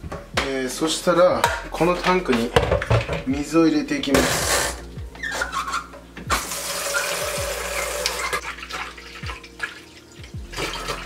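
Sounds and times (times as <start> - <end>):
water running into plastic tank: 6.3 - 11.0.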